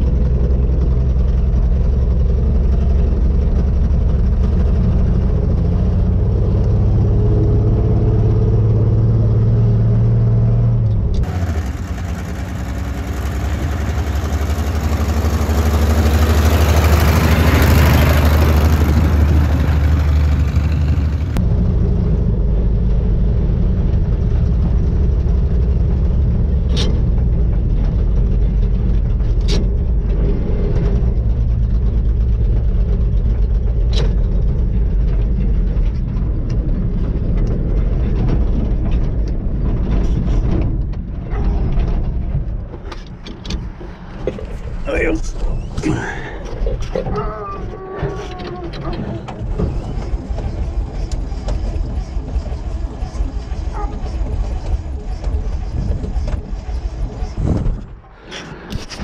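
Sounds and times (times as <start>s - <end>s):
truck driving past: 0.0s - 27.4s
truck engine running: 0.0s - 59.0s.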